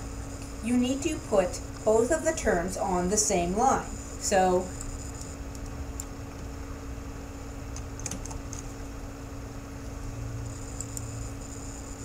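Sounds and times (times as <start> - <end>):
steady low hum: 0.0 - 12.0
keyboard keystrokes: 7.7 - 8.7.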